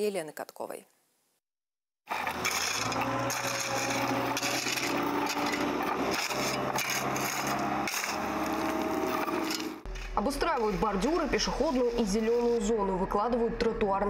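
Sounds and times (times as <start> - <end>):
engine humming: 2.1 - 10.0
shovel scraping crushed stone: 2.1 - 10.1.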